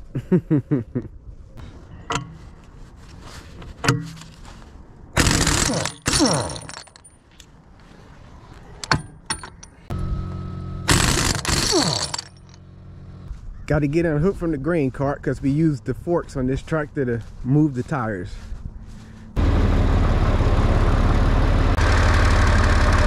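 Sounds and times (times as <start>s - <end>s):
sharp metallic clinks: 10.9s - 12.6s.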